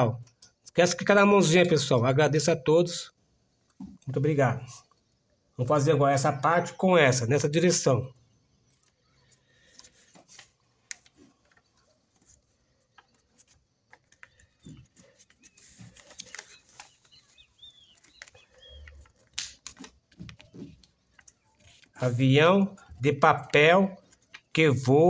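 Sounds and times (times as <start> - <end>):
paper rustling: 8.6 - 25.0
paper creasing clicks: 8.7 - 24.8.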